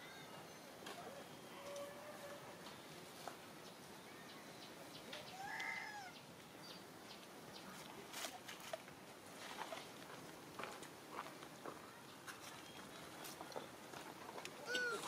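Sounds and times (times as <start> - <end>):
light clicks and rustles: 7.2 - 15.0
macaque call: 14.6 - 15.0.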